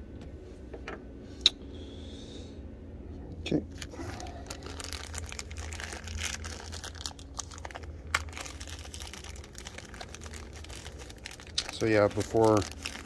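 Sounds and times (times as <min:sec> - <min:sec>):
low rumble: 0:02.6 - 0:11.8
small clicks and crinkling rustles: 0:03.7 - 0:13.0.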